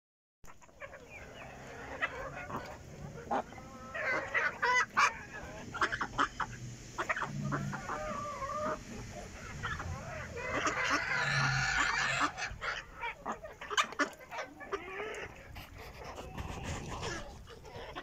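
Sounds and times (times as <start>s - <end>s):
chickens clucking and calling: 0.5s - 18.0s.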